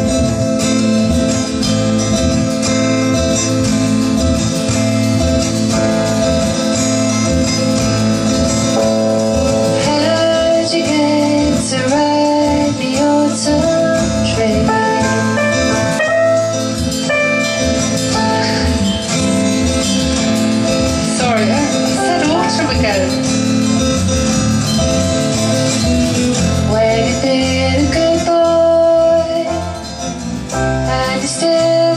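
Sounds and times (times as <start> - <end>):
acoustic guitar strummed: 0.0 - 31.9
woman singing: 9.7 - 16.0, 21.1 - 23.2, 26.6 - 29.9, 30.8 - 31.9.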